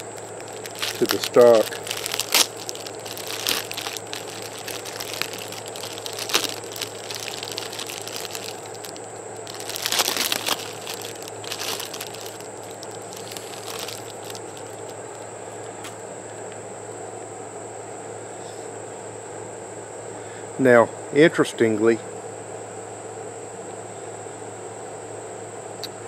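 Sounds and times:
bubble wrap crinkling: 0.0 - 15.3.

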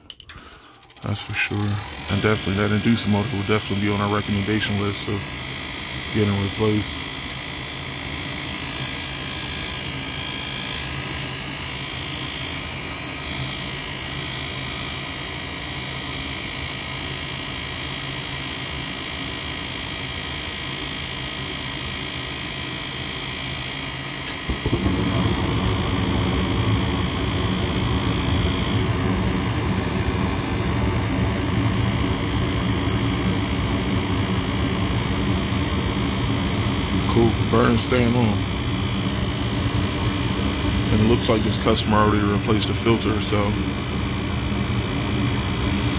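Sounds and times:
gas burners rumbling: 0.0 - 13.7, 24.2 - 45.9
furnace motor whirring: 0.0 - 45.9.

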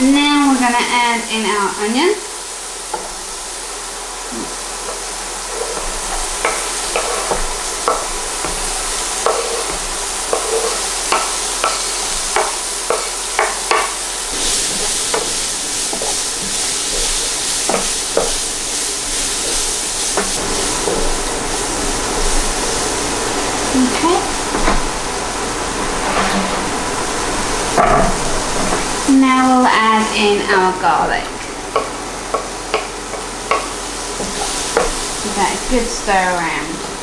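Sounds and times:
vegetables sizzling in a pan: 0.0 - 37.0
utensil scraping a pan: 4.4 - 21.1, 25.7 - 28.9.

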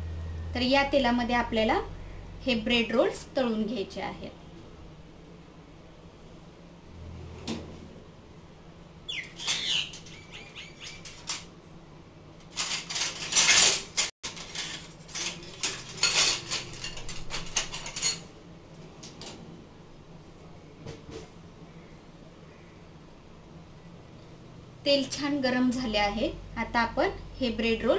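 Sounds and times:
metal utensils clattering in dish rack: 12.5 - 18.3.

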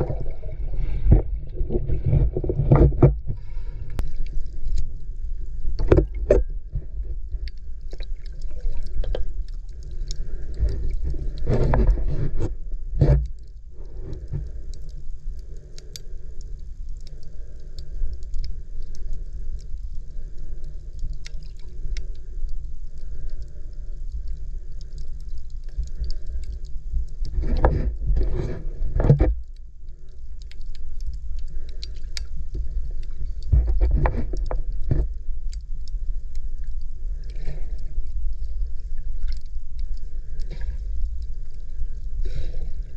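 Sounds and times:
surges of water: 0.0 - 4.8
low rumble of sea water: 0.0 - 42.9
faint clicks: 3.9 - 28.0, 28.9 - 42.9.

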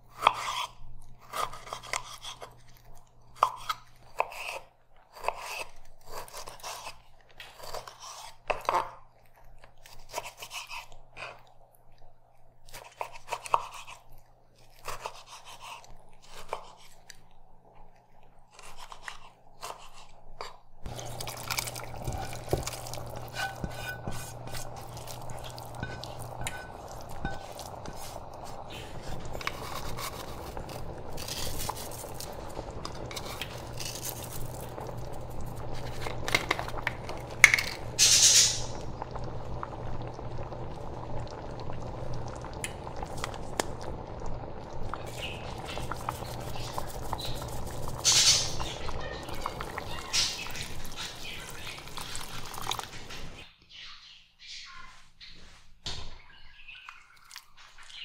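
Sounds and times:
crunchy cuts and scrapes: 27.7 - 32.3
steady hiss: 38.0 - 38.8.

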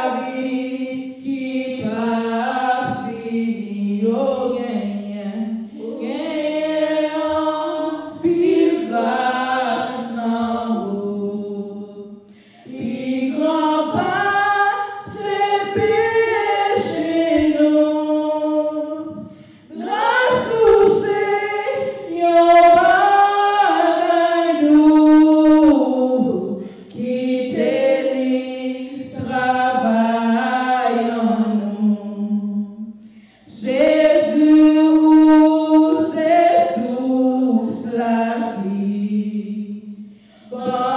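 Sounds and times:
woman singing a hymn: 0.0 - 40.9.

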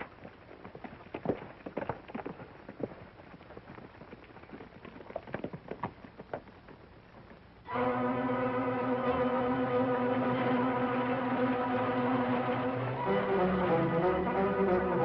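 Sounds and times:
horse hooves clip-clopping: 0.0 - 7.7
film score music: 7.7 - 15.0.

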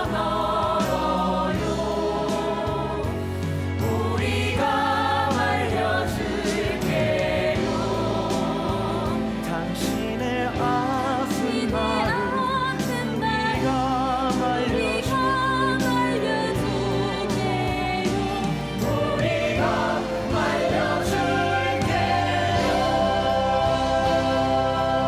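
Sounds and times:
live band accompaniment: 0.0 - 25.0
cast singing in chorus: 18.2 - 25.0.

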